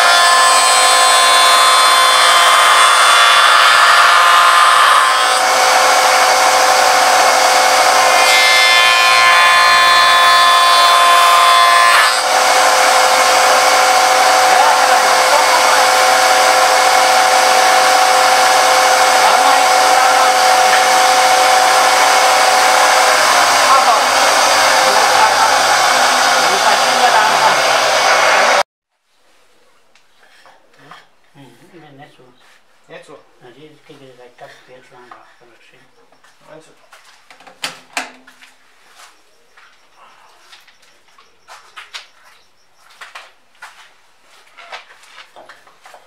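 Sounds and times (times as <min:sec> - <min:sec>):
spindle moulder whining: 0:00.0 - 0:28.6.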